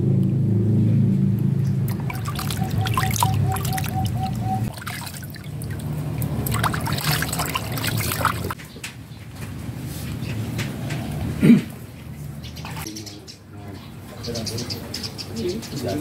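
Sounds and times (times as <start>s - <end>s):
water splashing in a basin: 1.6s - 8.6s.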